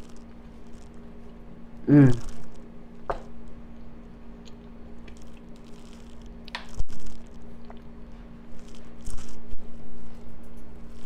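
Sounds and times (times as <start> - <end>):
wet mouth sounds: 1.9 - 2.6, 4.4 - 8.0
person chewing food: 4.4 - 8.0.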